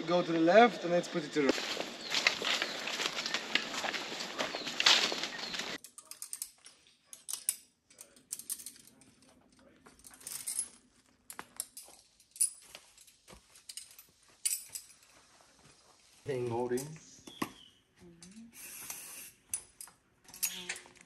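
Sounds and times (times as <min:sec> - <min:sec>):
metal carabiners clinking: 0:04.4 - 0:15.2, 0:19.5 - 0:21.0.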